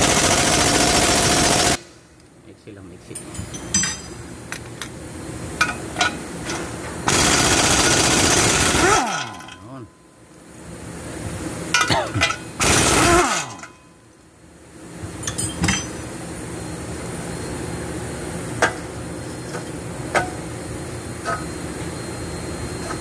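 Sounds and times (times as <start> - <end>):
loud tool bursts: 7.0 - 9.6, 11.9 - 13.8.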